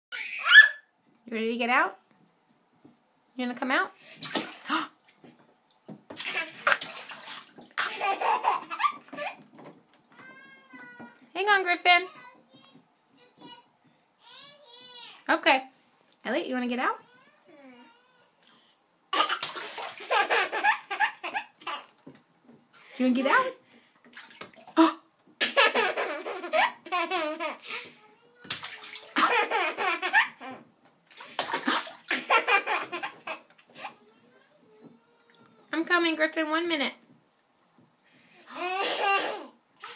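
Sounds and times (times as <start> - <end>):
bathwater splashing: 4.0 - 9.4, 19.2 - 21.9, 23.0 - 30.4, 31.0 - 34.0
toddler laughing: 7.8 - 9.4, 19.2 - 22.0, 25.4 - 28.0, 29.1 - 30.7, 32.1 - 34.0, 38.5 - 39.6.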